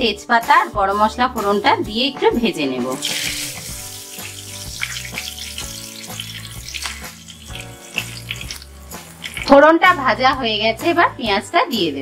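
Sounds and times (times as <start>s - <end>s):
soft background music: 0.0s - 12.0s
spices sizzling in hot oil: 2.9s - 10.1s
oil crackles: 3.0s - 9.6s.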